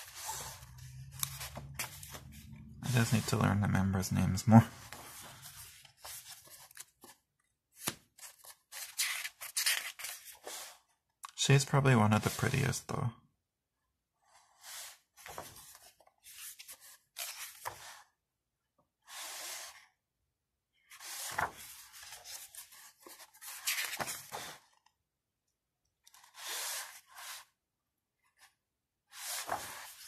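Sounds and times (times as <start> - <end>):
paper pages rustling: 0.0 - 4.0, 4.6 - 10.8, 15.2 - 18.1, 20.9 - 24.9, 29.1 - 30.0.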